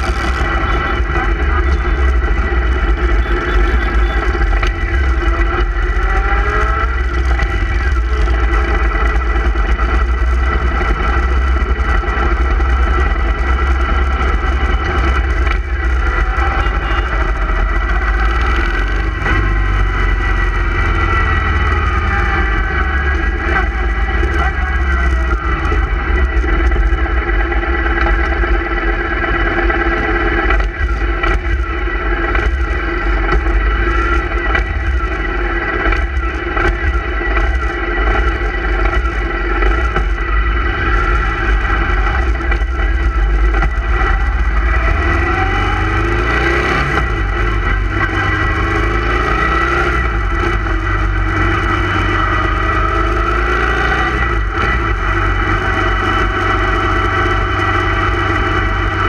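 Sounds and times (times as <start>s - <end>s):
motorcycle engines rumbling: 0.0s - 59.0s.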